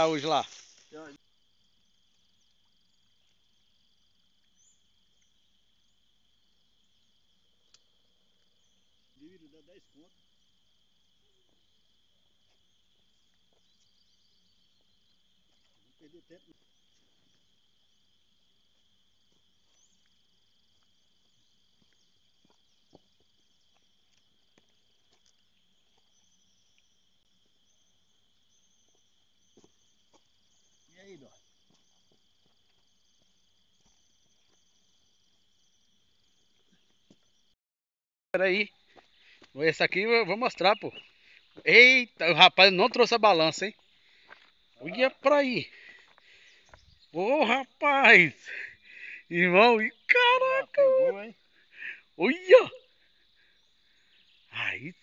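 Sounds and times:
insect chirring: 0.0s - 37.6s, 38.4s - 55.0s.

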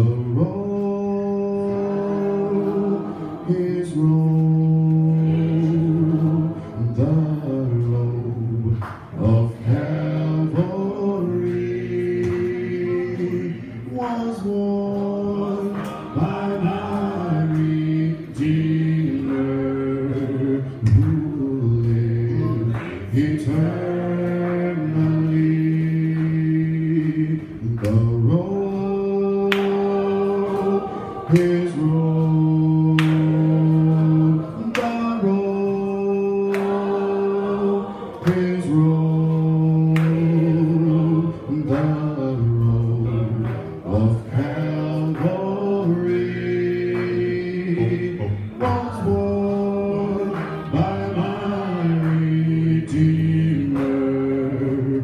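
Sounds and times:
man singing gospel unaccompanied: 0.0s - 55.0s.

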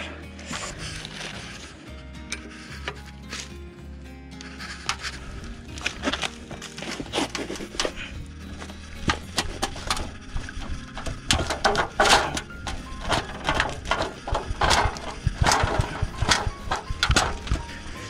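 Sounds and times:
background music: 0.0s - 18.0s
hand tools clicking and knocking on metal: 4.7s - 18.0s.

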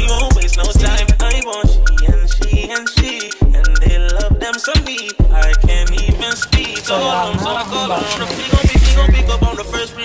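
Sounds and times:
hi-hat ticks: 0.0s - 6.9s
background music with beat: 0.0s - 10.0s
deep bass notes: 8.8s - 9.8s.

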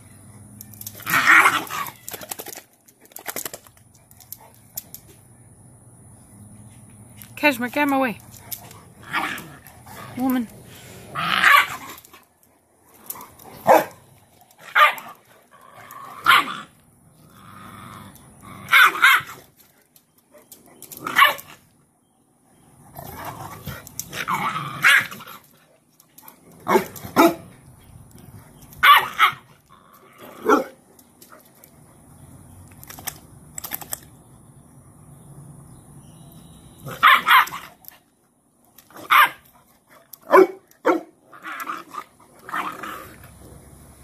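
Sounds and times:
puppy barking: 13.6s - 14.0s, 14.7s - 15.0s, 28.8s - 29.4s, 36.9s - 37.6s, 39.0s - 39.4s, 40.3s - 41.1s.

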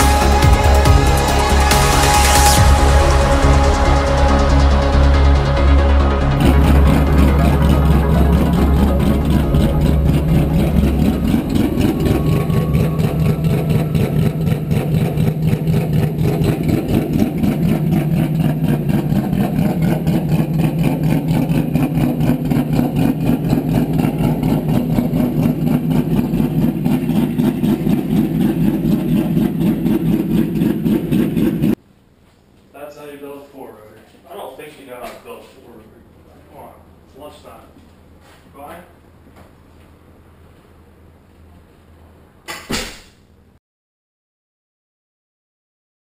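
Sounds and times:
rotary race engine idling: 6.3s - 31.8s.

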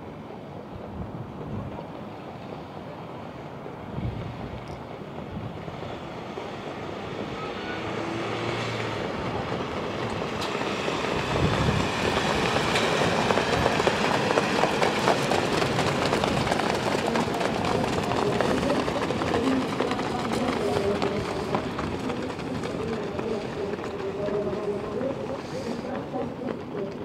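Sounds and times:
horses trotting on dirt: 9.1s - 27.0s.

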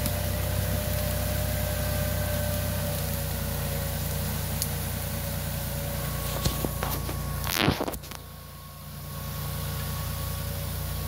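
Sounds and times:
branches brushing past: 0.0s - 10.3s
tractor engine running: 0.0s - 11.0s
twigs cracking: 2.2s - 8.3s.

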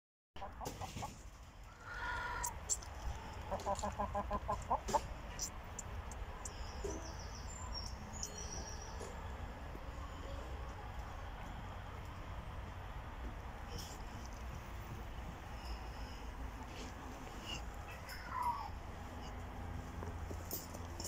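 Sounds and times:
rooster clucking: 0.4s - 1.2s, 3.4s - 5.6s.

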